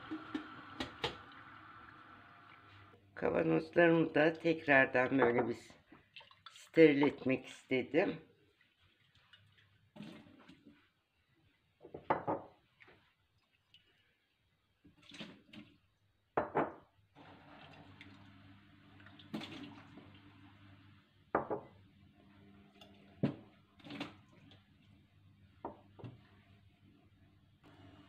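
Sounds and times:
water pouring from jars: 17.2s - 20.6s.

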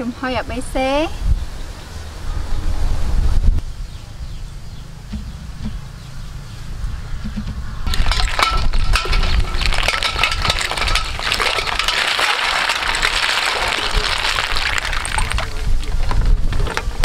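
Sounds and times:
water splashing in metal bowl: 7.9s - 16.1s.

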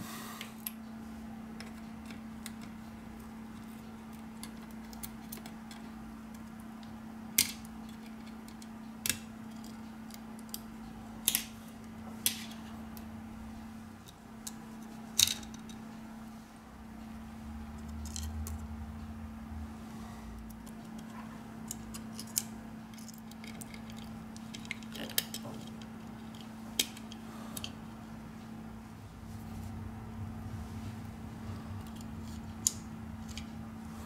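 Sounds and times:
steady low hum: 0.0s - 34.0s
small tools clicking and tapping: 3.6s - 11.6s, 17.8s - 18.6s, 20.4s - 27.8s, 31.8s - 33.6s.

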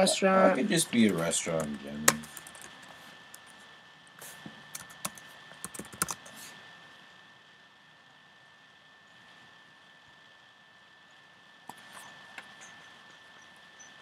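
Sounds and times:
keyboard typing: 1.0s - 3.5s, 4.7s - 6.3s.

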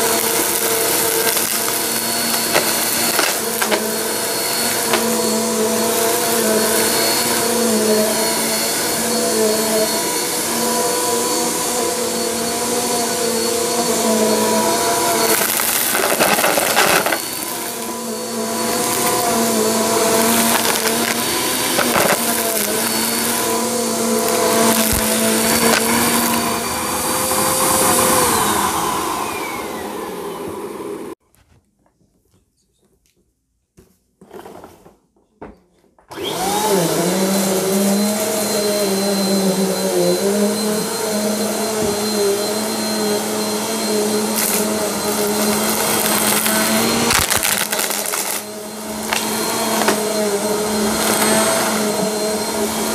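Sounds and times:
vacuum cleaner running on carpet: 0.0s - 31.2s, 36.1s - 52.9s
vacuum motor winding down: 0.0s - 31.2s, 36.1s - 52.9s.

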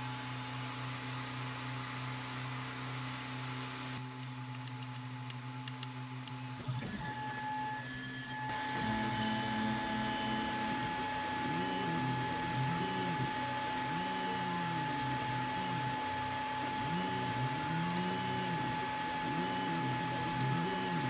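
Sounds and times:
printer fans humming: 4.0s - 21.0s
stepper motors whining: 6.6s - 21.0s.

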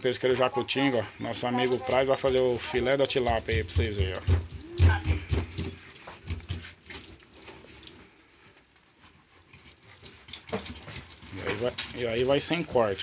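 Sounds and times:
tap water splashing: 1.4s - 8.6s
fish scraping and knocking on sink: 1.6s - 7.9s, 9.4s - 13.0s.

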